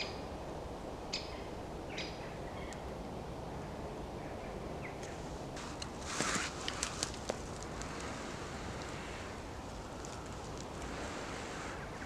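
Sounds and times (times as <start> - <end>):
outdoor background noise: 0.0 - 12.0
small bird chirping: 1.1 - 2.8.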